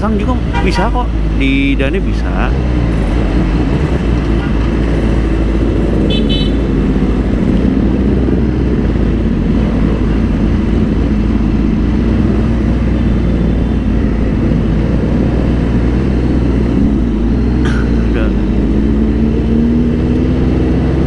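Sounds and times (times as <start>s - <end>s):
motorcycle engine cruising: 0.0s - 21.0s.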